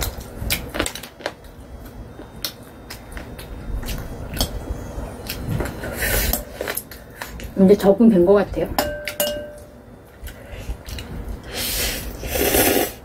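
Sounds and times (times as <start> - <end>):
chewing with mouth clicks: 10.2 - 11.4.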